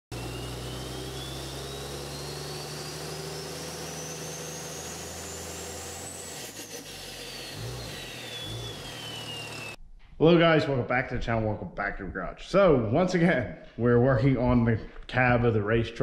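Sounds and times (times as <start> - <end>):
rising thin whistle: 7.3 - 9.8.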